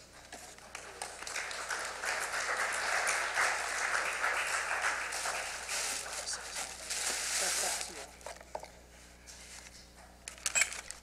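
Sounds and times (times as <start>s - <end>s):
crowd applauding: 0.6s - 6.6s.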